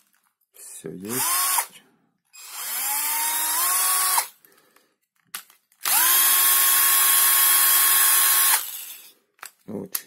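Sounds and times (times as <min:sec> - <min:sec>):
cordless drill motor whine: 0:01.2 - 0:01.7, 0:02.4 - 0:04.3, 0:05.8 - 0:09.1.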